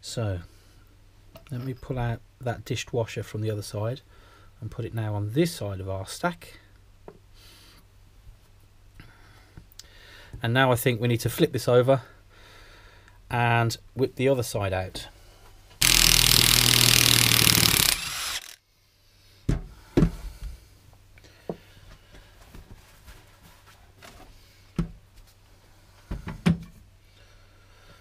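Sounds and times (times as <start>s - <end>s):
loud machine noise: 15.8s - 18.6s.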